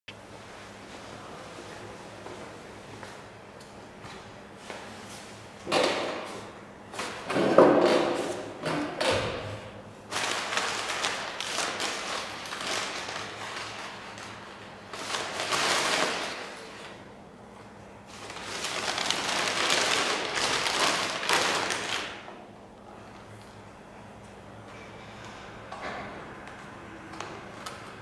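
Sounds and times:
paper bag rustling and crinkling: 10.1 - 17.0, 18.1 - 22.2.

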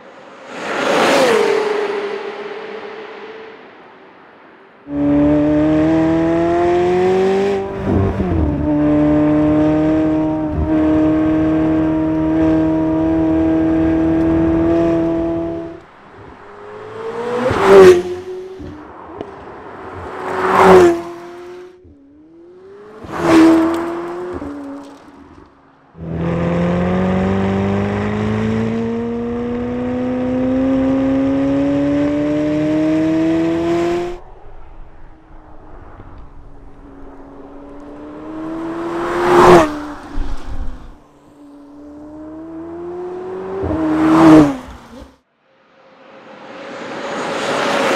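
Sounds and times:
car fly-bys: 0.1 - 47.9
sports car engine accelerating: 4.9 - 15.8, 16.4 - 45.2.

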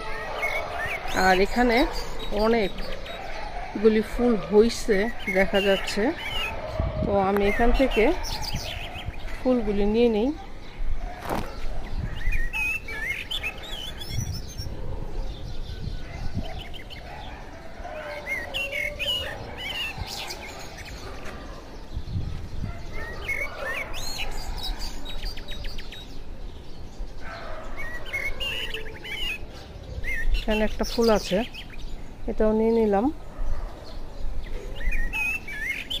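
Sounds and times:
bird trill: 0.0 - 4.2, 11.3 - 21.6, 33.8 - 36.0
small birds chirping: 0.0 - 36.0.

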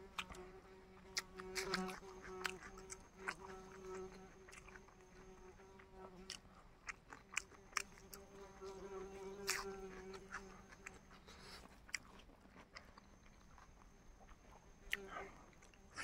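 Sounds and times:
person chewing food: 0.0 - 16.0.

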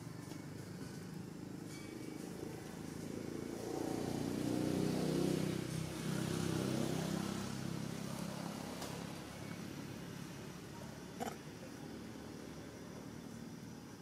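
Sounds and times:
vehicle engine passing: 2.4 - 13.6.

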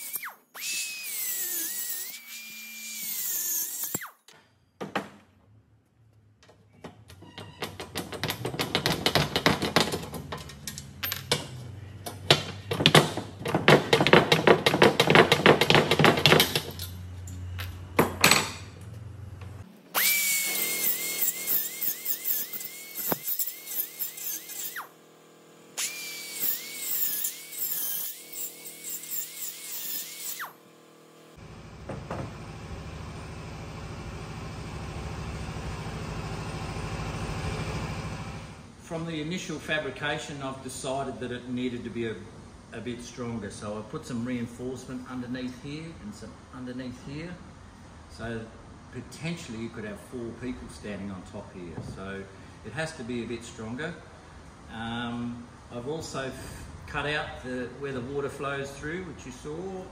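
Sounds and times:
angle grinder cutting metal: 0.0 - 4.2, 20.0 - 25.0, 25.7 - 30.6.

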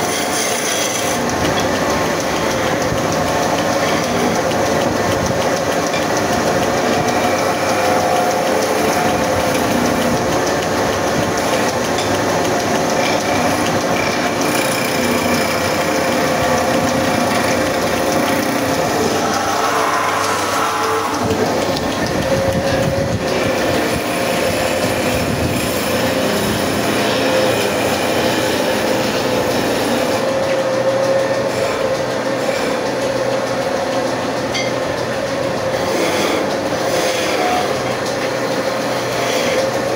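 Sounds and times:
chisel cutting spinning wood: 0.0 - 39.9
wood lathe humming: 0.0 - 39.9.

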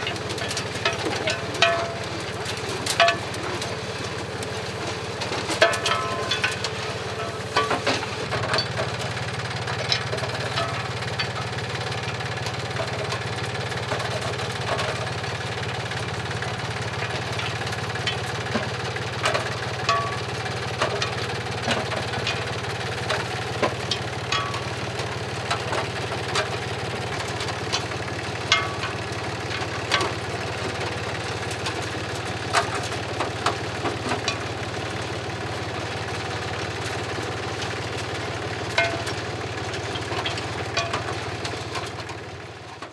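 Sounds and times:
tractor engine running: 0.0 - 42.9.

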